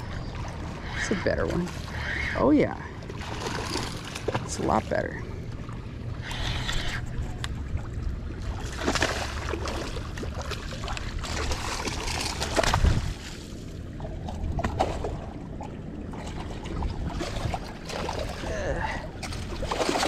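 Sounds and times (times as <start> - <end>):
fish thrashing water splashing: 3.0 - 4.6, 8.4 - 15.3, 19.2 - 20.0.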